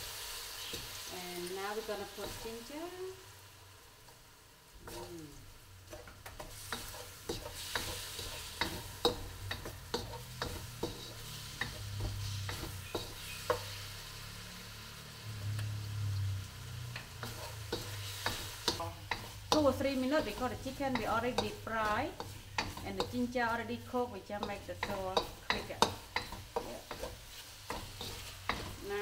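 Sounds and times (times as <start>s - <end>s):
food sizzling in a wok: 0.0s - 29.0s
wooden spoon scraping a pan: 5.9s - 14.0s, 16.9s - 29.0s.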